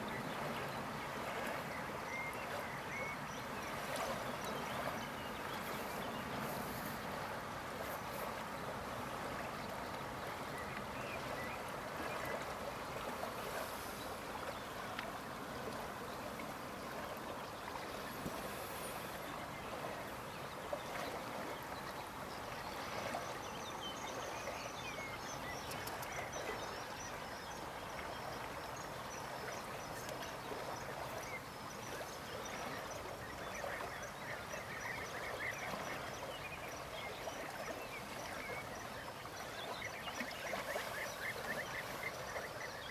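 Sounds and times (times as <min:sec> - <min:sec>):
faint high chirps and ticks: 0:21.8 - 0:42.9.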